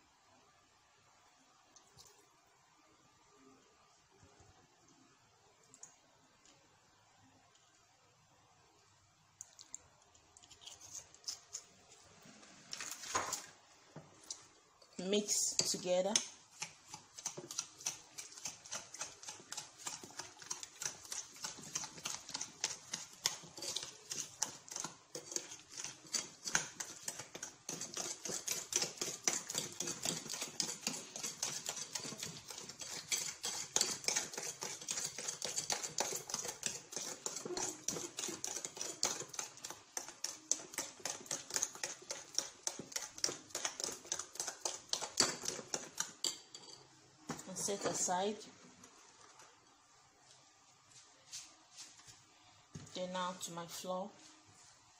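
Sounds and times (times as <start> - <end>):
spoon beating eggs in a bowl: 14.0 - 48.1.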